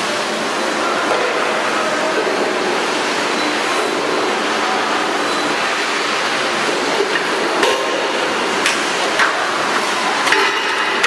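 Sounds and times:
machine running with noisy hum: 0.0s - 11.0s.

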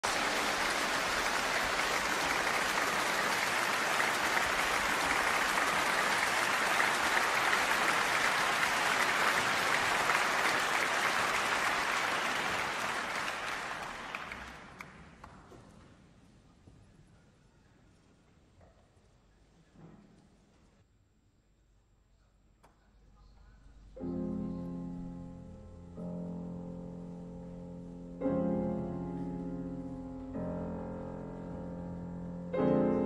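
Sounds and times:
audience applauding: 0.0s - 15.6s.

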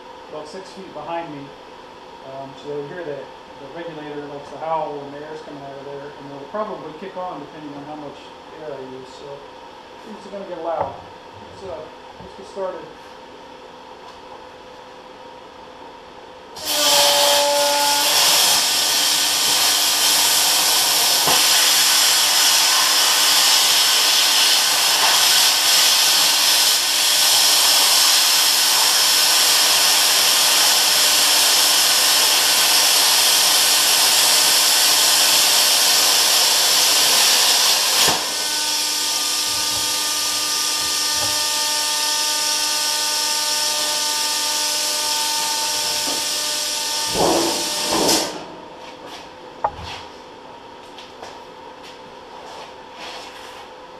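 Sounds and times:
air hiss: 16.6s - 41.2s
plasma cutter hissing: 16.6s - 48.5s
air regulator howling: 34.0s - 48.5s.

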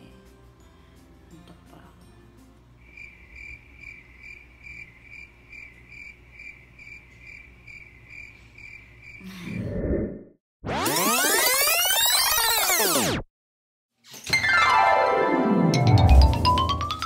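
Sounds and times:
cricket chirping: 2.8s - 9.3s
music with sweeping tones: 14.4s - 17.0s.

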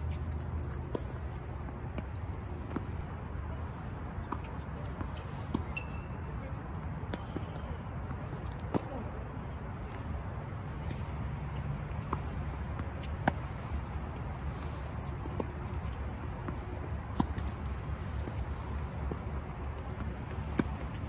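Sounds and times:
racquets striking tennis ball: 6.8s - 9.2s.

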